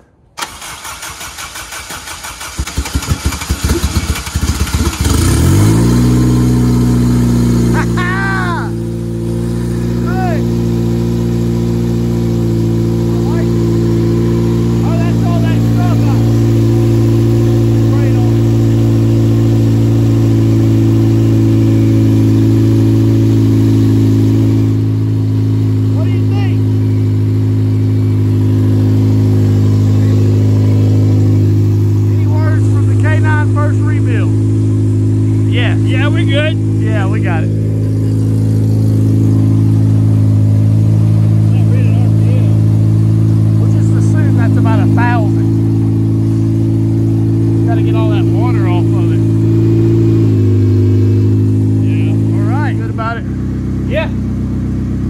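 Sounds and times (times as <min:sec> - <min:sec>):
engine cranking on starter: 0:00.4 - 0:06.0
car engine running and revving: 0:02.7 - 0:55.0.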